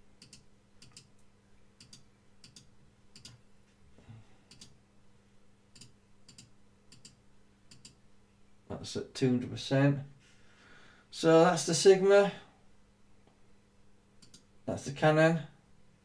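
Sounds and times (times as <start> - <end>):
computer mouse clicks: 0.2 - 3.4, 4.5 - 4.8, 5.7 - 8.0, 14.2 - 14.5.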